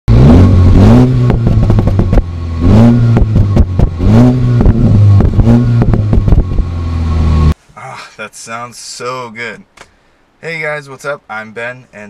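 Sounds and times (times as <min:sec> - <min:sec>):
car engine revving: 0:00.1 - 0:07.6
exhaust pops and crackles: 0:00.3 - 0:07.5.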